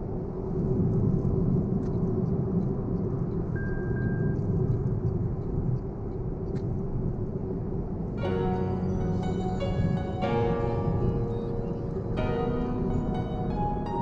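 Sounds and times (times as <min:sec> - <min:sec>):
road and tyre rumble: 0:00.0 - 0:14.0.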